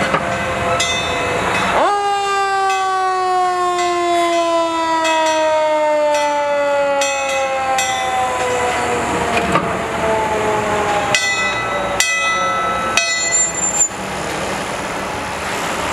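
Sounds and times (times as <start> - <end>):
fire engine siren winding down: 1.7 - 13.0.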